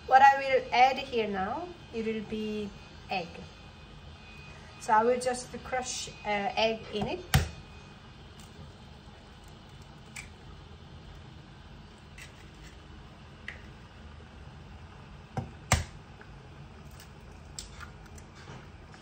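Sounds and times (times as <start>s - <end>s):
low steady hum: 0.0s - 19.0s
eggs cracking against a pot: 8.3s - 11.3s.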